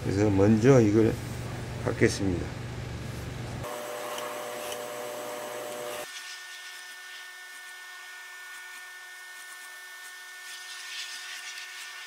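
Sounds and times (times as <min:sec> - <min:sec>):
sewing machine motor whine: 0:03.7 - 0:06.1.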